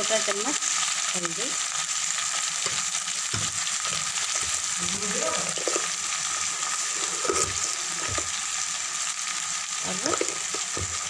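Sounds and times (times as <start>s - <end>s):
masala sizzling in hot oil: 0.0s - 11.0s
metal ladle scraping pan: 2.6s - 8.6s, 9.9s - 11.0s.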